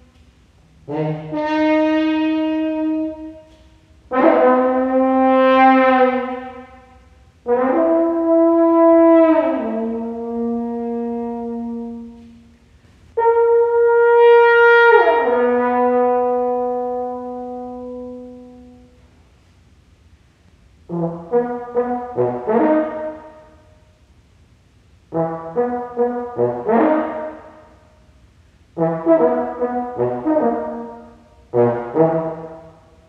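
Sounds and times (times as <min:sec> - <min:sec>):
french horn long notes: 0:00.0 - 0:19.5, 0:20.7 - 0:24.0, 0:25.0 - 0:33.0.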